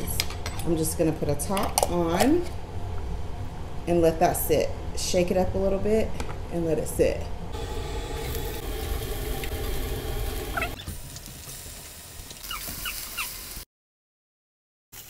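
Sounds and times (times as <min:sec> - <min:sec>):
meat patties sizzling: 0:07.6 - 0:13.6
onions sizzling in oil: 0:07.6 - 0:13.6.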